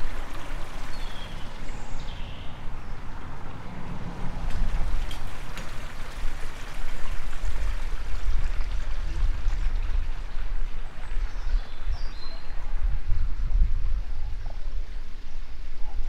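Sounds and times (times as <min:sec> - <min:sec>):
bird chirp: 0:00.0 - 0:03.7, 0:10.8 - 0:13.2
wind buffeting microphone: 0:00.0 - 0:16.0.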